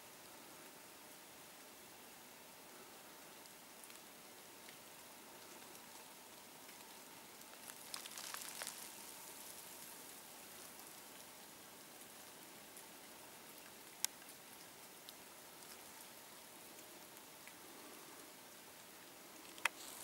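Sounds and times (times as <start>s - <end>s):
faint steady hiss: 0.0s - 20.0s
crackling and clicking: 6.6s - 11.2s, 19.4s - 20.0s.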